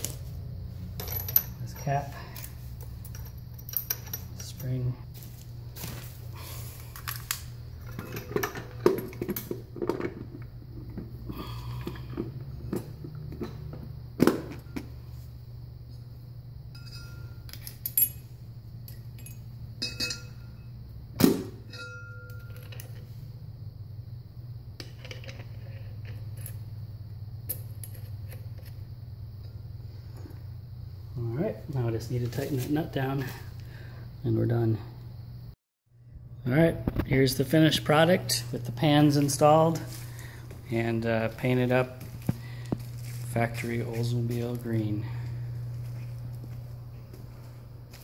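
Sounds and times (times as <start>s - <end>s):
steady low hum: 0.0s - 48.0s
metal parts clinking and knocking: 0.9s - 4.8s, 6.9s - 11.1s, 16.7s - 20.6s, 21.6s - 23.1s, 24.8s - 26.6s.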